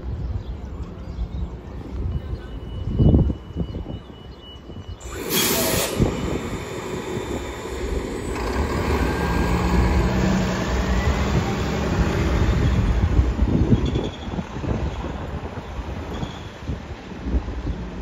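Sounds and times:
air brake hiss: 5.0 - 8.1
bus drivetrain running: 5.0 - 17.6.

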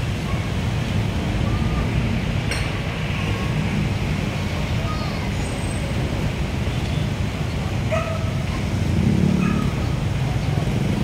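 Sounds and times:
city traffic rumble: 0.0 - 11.0.

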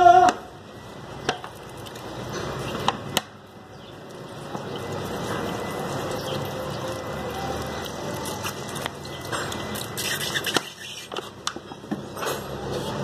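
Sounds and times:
wet scraping and squishing: 7.6 - 11.7.

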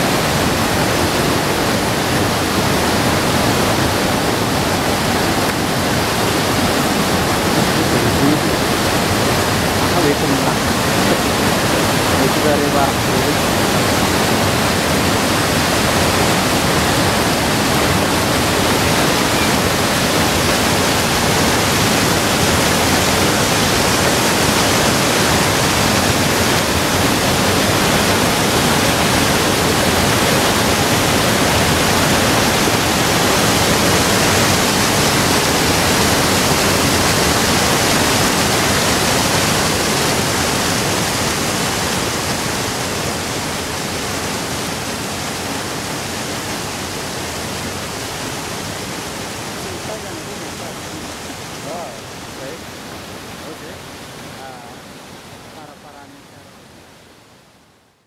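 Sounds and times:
waterfall rushing: 0.0 - 57.1.

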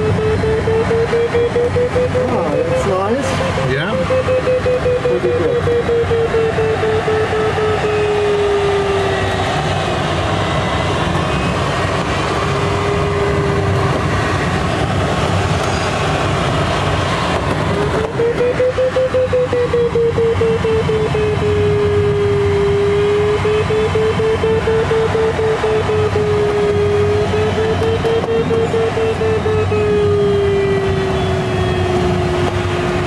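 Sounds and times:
quick electronic beeps: 0.0 - 7.4
variometer electronic tone: 0.0 - 9.4, 17.7 - 33.0.

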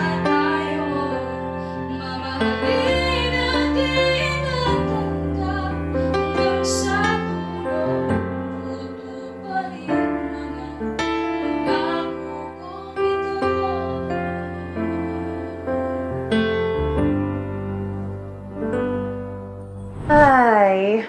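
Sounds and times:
woman singing slow song: 0.0 - 7.9, 8.5 - 15.8.

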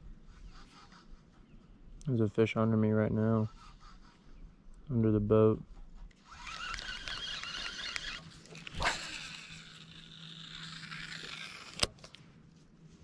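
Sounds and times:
fishing reel whirring: 6.2 - 12.0
sharp reel clicks: 6.2 - 12.1.

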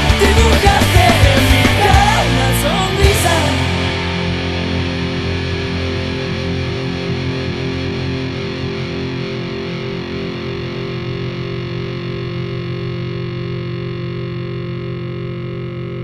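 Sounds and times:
distorted electric guitar chords: 0.0 - 16.0.

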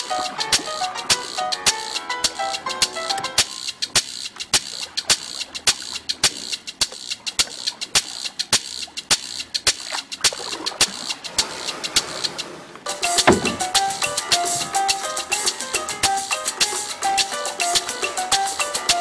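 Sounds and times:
salsa melody: 0.0 - 5.5, 12.9 - 19.0
salsa percussion beat: 0.0 - 19.0.

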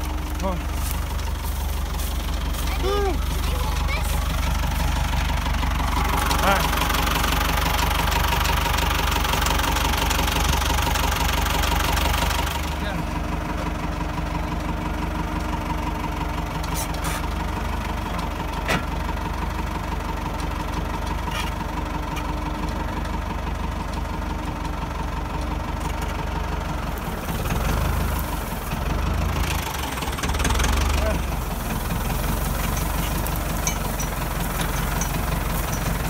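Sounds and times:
tractor diesel engine idling: 0.0 - 36.0.

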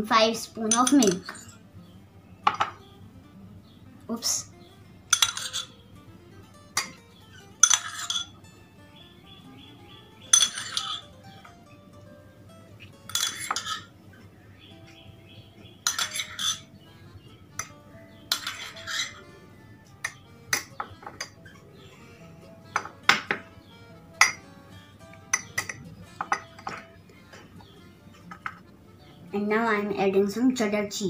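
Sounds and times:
cutlery clinking on ceramic mug: 0.7 - 1.6, 2.4 - 2.8, 5.1 - 5.7, 7.6 - 8.4, 10.3 - 11.0, 13.1 - 13.9, 15.8 - 16.7, 18.3 - 19.2, 22.8 - 23.4, 24.2 - 24.4, 25.3 - 26.9
metal spoon scraping ceramic dishes: 0.7 - 1.6, 5.1 - 5.8, 6.8 - 8.4, 10.3 - 11.1, 13.1 - 13.9, 15.8 - 16.7, 18.3 - 19.2, 25.3 - 27.0, 28.3 - 28.6.

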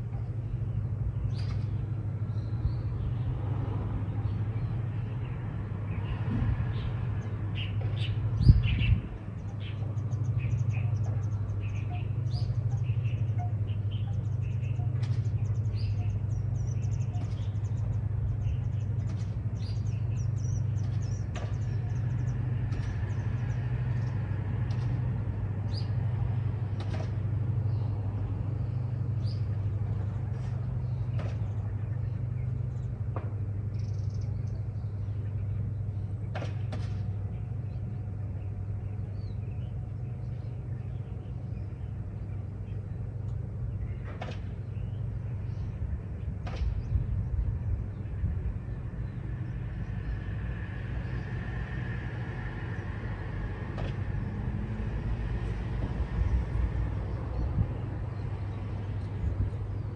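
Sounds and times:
steady low hum: 0.0 - 59.9
small birds chirping: 0.1 - 3.3, 4.1 - 25.0, 27.4 - 51.6.

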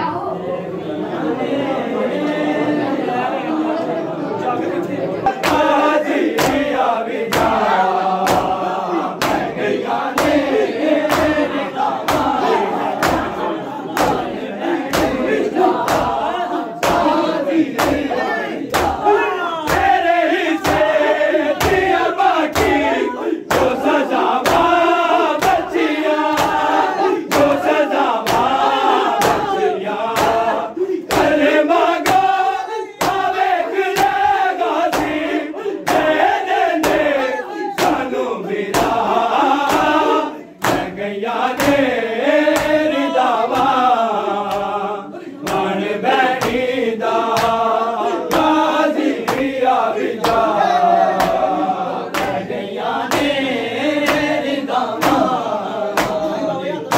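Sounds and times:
men chanting together: 0.0 - 56.9
hand slaps on bare chests: 5.3 - 16.2, 16.8 - 37.2, 37.8 - 43.9, 44.5 - 44.7, 45.4 - 47.7, 48.3 - 49.6, 50.2 - 50.5, 51.2 - 51.5, 52.1 - 52.4, 53.1 - 53.4, 54.0 - 56.3.

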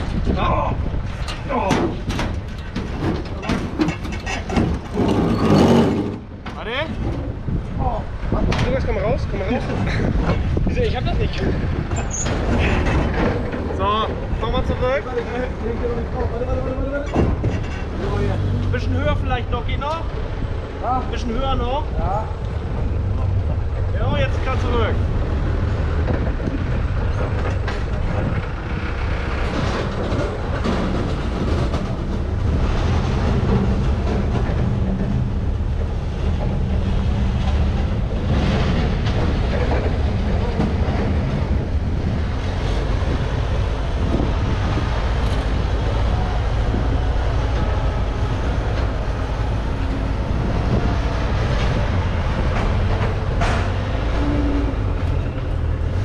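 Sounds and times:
diesel engine running: 21.8 - 56.0.

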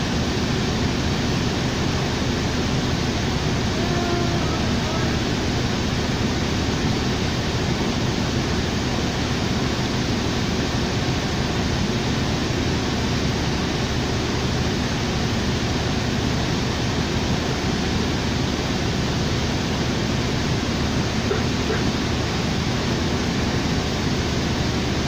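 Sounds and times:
low engine hum: 0.0 - 25.0
bus cabin rushing hiss: 3.3 - 7.3, 19.2 - 23.2.

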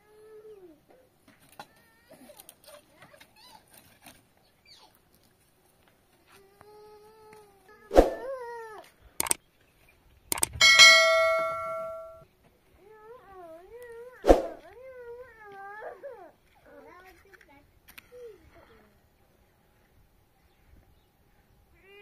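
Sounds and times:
metallic clang: 10.3 - 12.2
high wavering cries: 10.6 - 12.2.

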